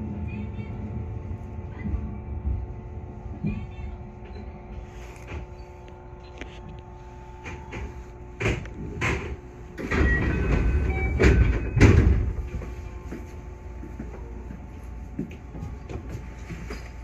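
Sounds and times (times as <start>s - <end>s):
train rumbling: 0.0s - 17.0s
train door thuds: 7.4s - 12.7s.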